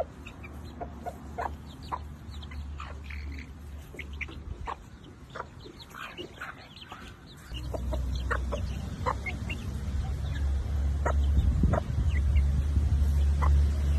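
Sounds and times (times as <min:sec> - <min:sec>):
chickens clucking: 0:00.0 - 0:13.9
steady low rumble: 0:07.5 - 0:13.9.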